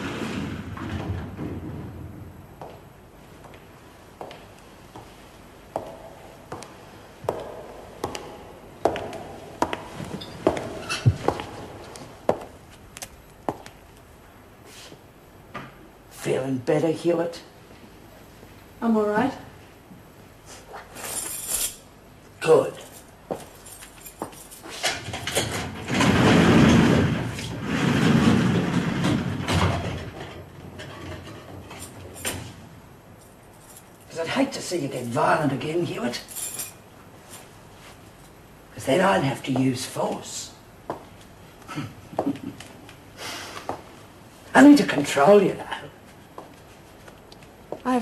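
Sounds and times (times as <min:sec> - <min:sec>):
hard-soled footsteps on hard floor: 0:02.6 - 0:14.0, 0:40.8 - 0:41.3, 0:46.1 - 0:47.9
metal cell door sliding: 0:24.7 - 0:32.6.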